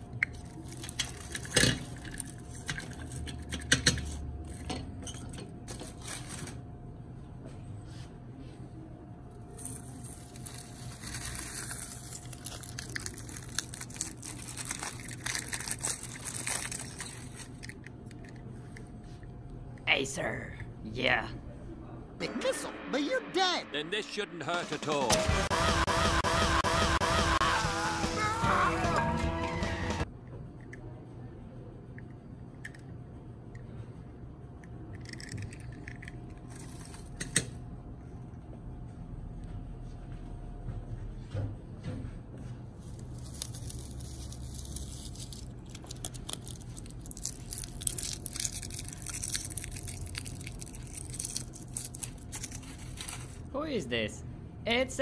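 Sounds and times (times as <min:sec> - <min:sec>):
aluminium foil crinkling: 0:00.3 - 0:03.4, 0:05.7 - 0:06.6, 0:09.7 - 0:18.4, 0:42.8 - 0:53.5.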